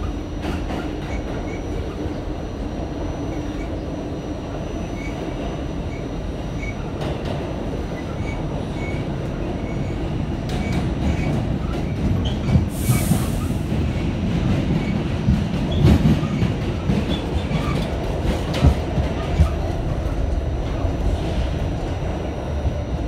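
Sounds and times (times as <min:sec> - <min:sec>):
subway wheels rumbling on track: 0:00.0 - 0:23.0
burst of hiss: 0:12.7 - 0:13.6.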